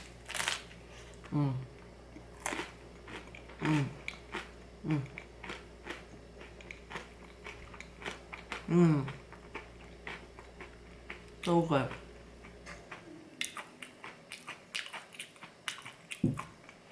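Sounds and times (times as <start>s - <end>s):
crackers crunching: 0.0s - 1.4s, 2.1s - 16.9s
person humming: 1.2s - 1.8s, 3.6s - 4.1s, 4.8s - 5.2s, 8.6s - 9.2s.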